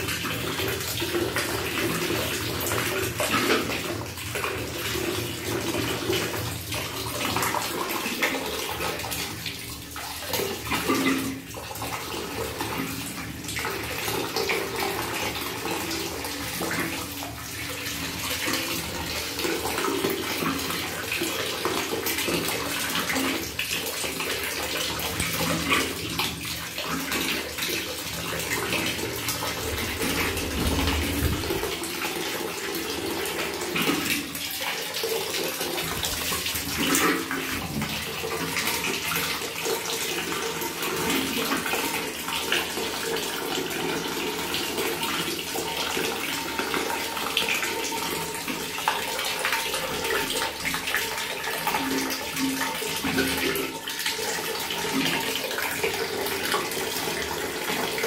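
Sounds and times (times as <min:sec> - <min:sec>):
tap water pouring into bucket: 0:00.0 - 0:58.0
parrot splashing in water: 0:35.7 - 0:37.2.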